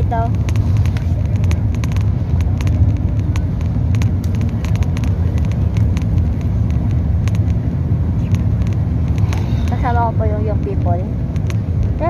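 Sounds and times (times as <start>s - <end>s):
bus engine rumble: 0.0s - 12.0s
light clicks and rattles: 0.0s - 12.0s
road noise: 0.0s - 12.0s.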